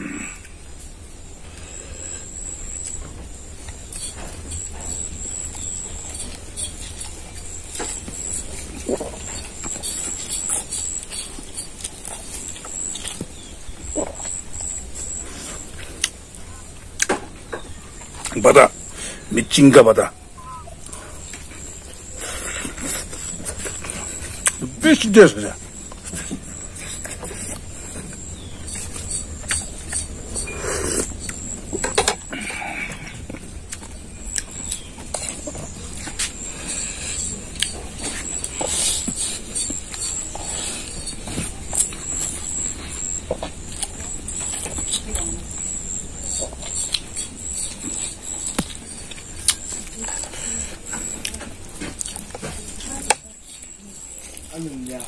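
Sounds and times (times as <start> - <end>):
chewing with mouth smacks: 25.6 - 32.3, 32.9 - 52.9.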